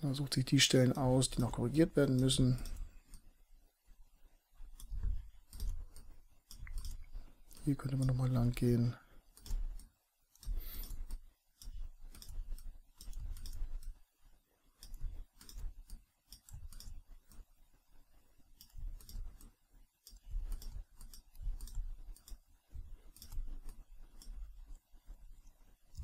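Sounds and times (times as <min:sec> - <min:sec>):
computer mouse clicks: 0:01.3 - 0:03.4, 0:04.6 - 0:14.1, 0:14.7 - 0:26.0.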